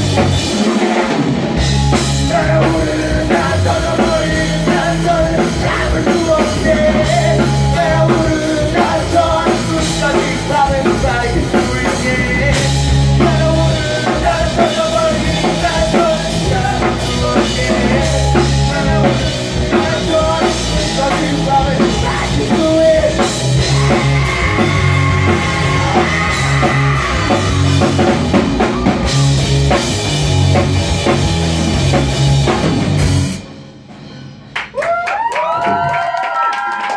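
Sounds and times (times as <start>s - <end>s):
electric guitar: 0.0s - 33.5s
drum kit: 0.0s - 36.2s
man singing: 1.9s - 29.0s.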